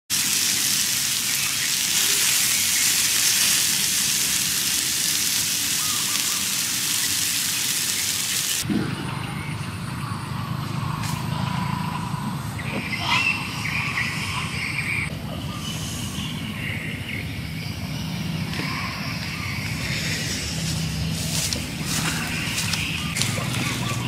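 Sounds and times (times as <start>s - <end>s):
steak sizzling on hot stone: 0.1s - 8.6s
low rumbling outdoor ambience: 0.1s - 24.0s.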